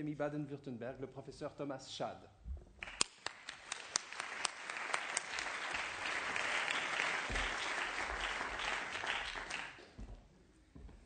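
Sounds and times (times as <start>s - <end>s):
audience applauding: 2.8s - 9.9s.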